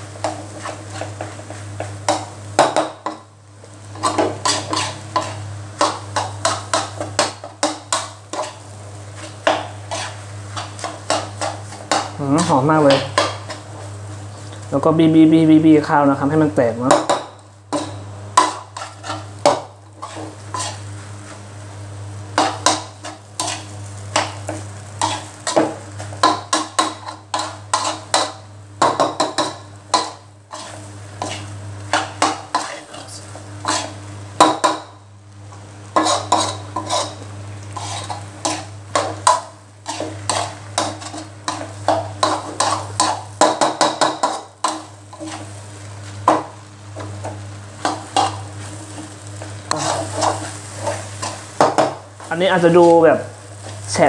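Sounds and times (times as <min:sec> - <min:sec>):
faint sizzle: 0:00.0 - 0:54.0
metal spatula scraping a wok: 0:03.9 - 0:13.8, 0:17.8 - 0:21.3, 0:22.4 - 0:28.4, 0:29.3 - 0:34.6, 0:35.9 - 0:45.6, 0:47.8 - 0:51.8.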